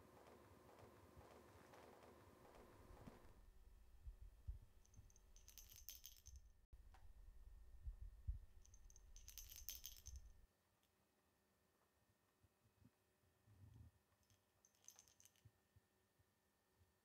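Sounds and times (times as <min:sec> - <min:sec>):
high tinkling jingles: 0:04.8 - 0:06.5, 0:08.6 - 0:10.4, 0:14.7 - 0:15.4.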